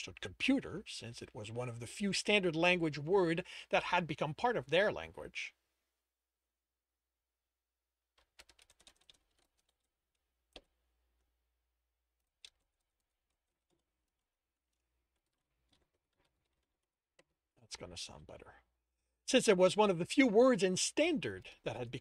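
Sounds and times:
faint typing on computer keyboard: 0:08.1 - 0:11.3, 0:12.2 - 0:17.4.

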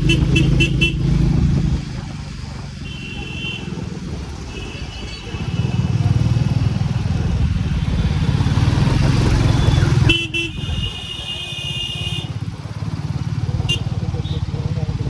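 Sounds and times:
vehicle horn: 0:00.0 - 0:01.1, 0:02.8 - 0:03.8, 0:04.5 - 0:06.0, 0:09.6 - 0:12.4, 0:13.6 - 0:13.9
motorcycle engine rumbling: 0:00.0 - 0:15.0.

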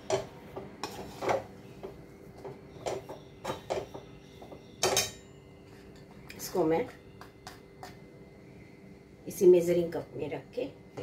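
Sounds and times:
metal spoon scraping a pan: 0:00.0 - 0:02.0.

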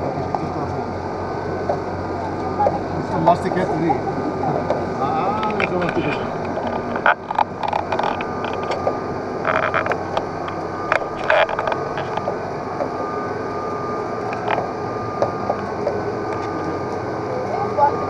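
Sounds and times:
metallic clicks and creaks: 0:05.4 - 0:12.9, 0:14.3 - 0:14.7.

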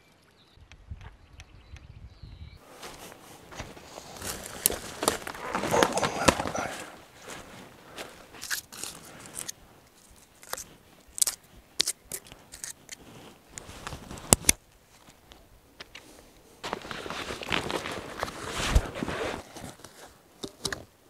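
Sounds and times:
nylon fabric rustling: 0:02.6 - 0:09.8, 0:13.1 - 0:14.4, 0:16.6 - 0:20.2.

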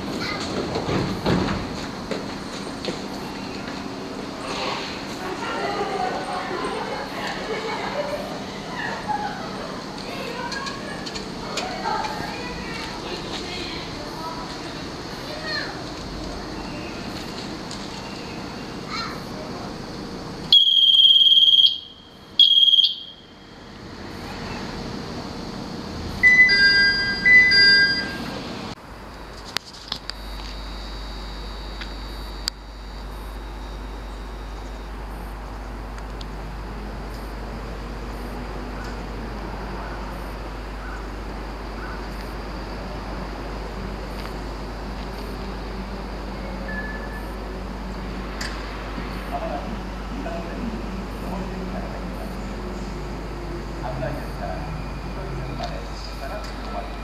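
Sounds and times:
high-pitched electronic beeps: 0:26.1 - 0:28.4, 0:46.4 - 0:47.4.

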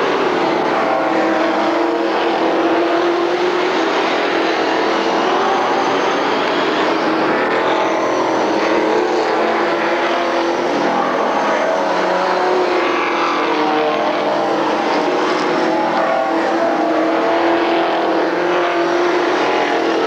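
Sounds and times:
racing car engines: 0:00.0 - 0:20.0.

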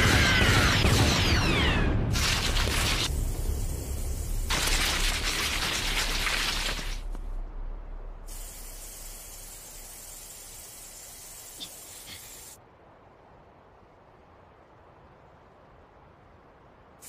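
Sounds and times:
steam hissing: 0:08.3 - 0:12.6.

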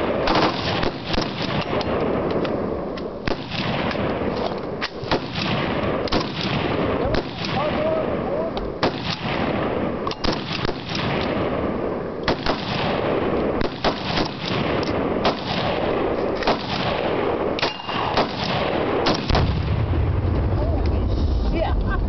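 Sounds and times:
machine guns firing: 0:00.0 - 0:02.1, 0:05.0 - 0:08.0, 0:08.8 - 0:19.9
loud gunshots cracking: 0:00.0 - 0:02.3, 0:03.2 - 0:08.2, 0:08.8 - 0:20.2.

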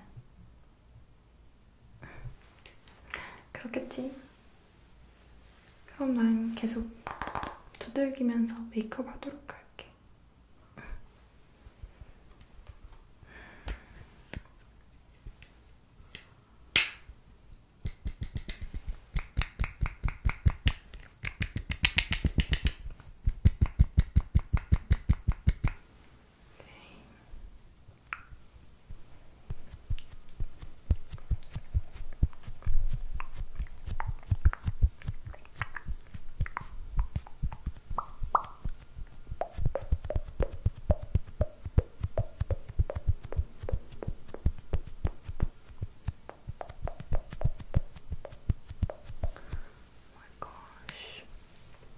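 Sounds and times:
sponge patting on microphone: 0:17.8 - 0:25.8, 0:28.1 - 0:49.7.

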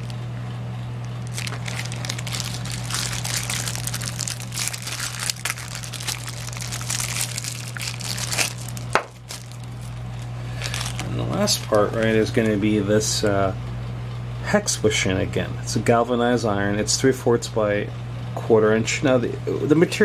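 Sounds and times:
plastic bag crinkling: 0:00.0 - 0:00.2, 0:01.0 - 0:12.7
steady low hum: 0:00.0 - 0:20.0.

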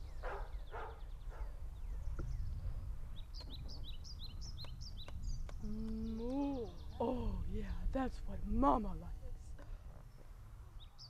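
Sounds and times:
small bird chirping: 0:00.0 - 0:07.9
wind rumbling on microphone: 0:00.0 - 0:11.0.

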